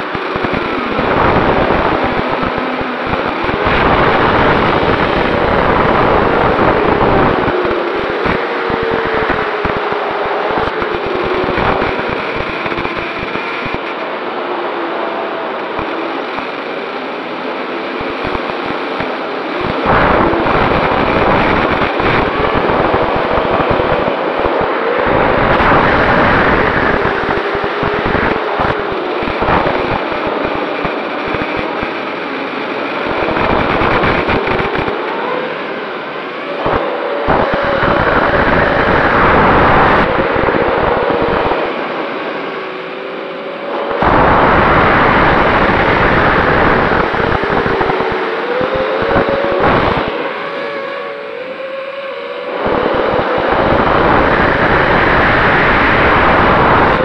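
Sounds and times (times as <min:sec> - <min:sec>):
rushing wind noise: 0:00.0 - 0:57.0.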